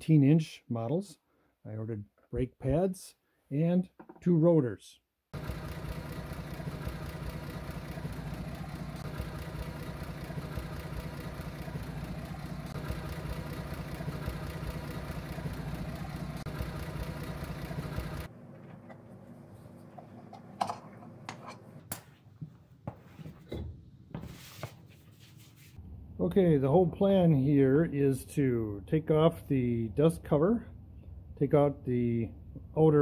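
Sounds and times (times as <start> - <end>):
engine idling: 5.3 - 21.2.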